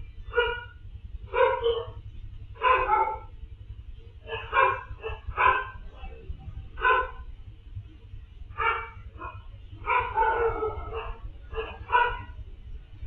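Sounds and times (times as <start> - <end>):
steady low hum: 0.0 - 13.0
dog barking: 0.2 - 2.0, 2.6 - 3.4, 4.2 - 6.2, 6.8 - 7.3, 8.5 - 12.4.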